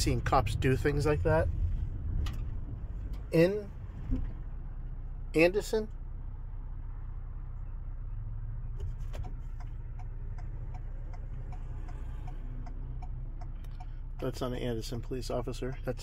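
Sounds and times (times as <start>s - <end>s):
engine idling hum: 0.0s - 16.0s
turn signal ticking: 7.6s - 16.0s.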